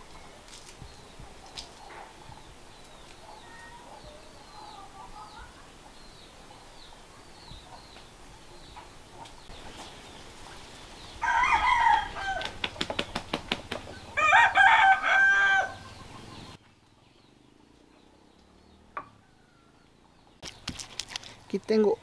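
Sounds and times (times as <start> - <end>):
rooster crowing: 11.2 - 12.6, 14.1 - 15.9.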